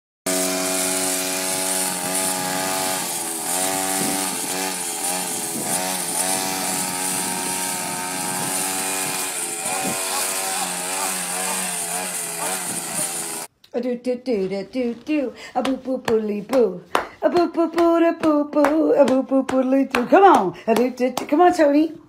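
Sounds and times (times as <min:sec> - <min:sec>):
string trimmer engine revving: 0:00.3 - 0:13.5.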